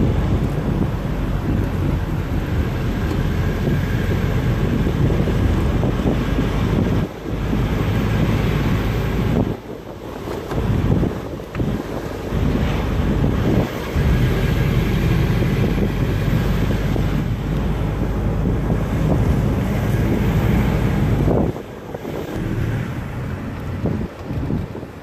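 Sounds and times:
car road and engine rumble: 0:00.0 - 0:25.0
wind buffeting microphone: 0:00.0 - 0:25.0.

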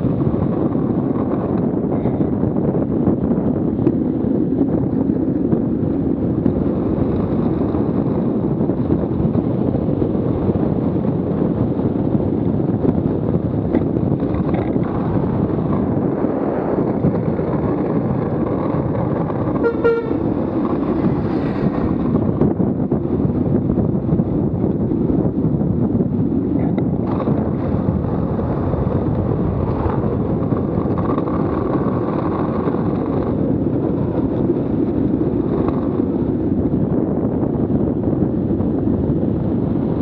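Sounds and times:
wheels rolling on asphalt: 0:00.0 - 0:40.0
wind rushing: 0:00.0 - 0:40.0
car horn honk: 0:19.6 - 0:20.3.

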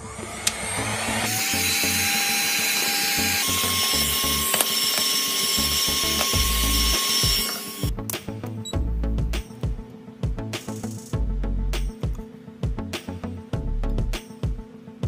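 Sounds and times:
heat gun blowing: 0:00.0 - 0:07.9
background music with steady beat: 0:00.1 - 0:15.0.

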